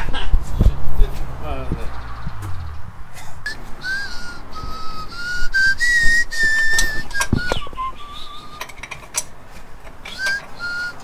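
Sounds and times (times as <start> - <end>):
person whistling a tune: 3.5 - 8.9, 10.1 - 11.0
tools clicking: 8.6 - 10.5.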